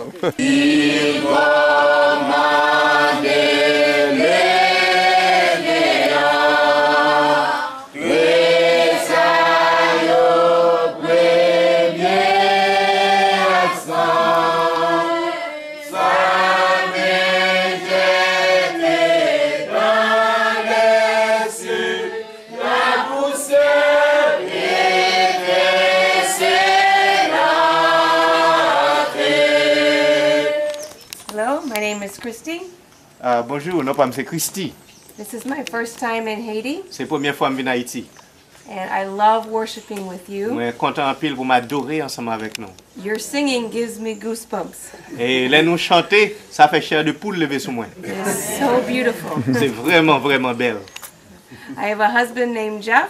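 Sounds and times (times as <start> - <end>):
congregation singing: 0.0 - 31.2, 47.2 - 50.8.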